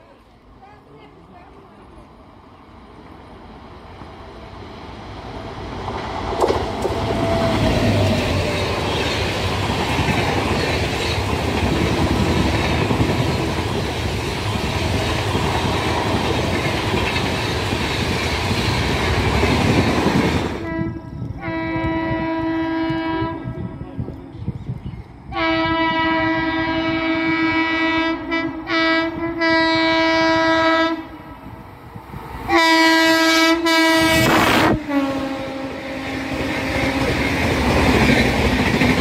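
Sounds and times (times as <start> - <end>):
train passing with wheel clatter: 0.0 - 39.0
train horn blast: 20.6 - 23.6, 25.3 - 31.2, 32.5 - 37.4.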